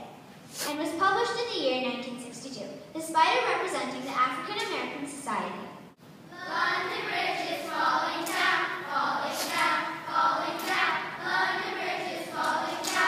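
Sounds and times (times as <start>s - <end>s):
young children singing: 6.3s - 13.0s.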